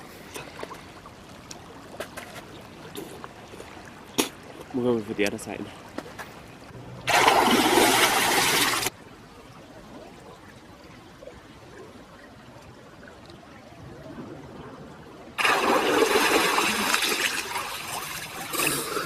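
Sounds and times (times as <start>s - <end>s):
faint water sounds: 0.0s - 19.0s
loud water splash: 7.1s - 8.9s, 15.4s - 19.0s.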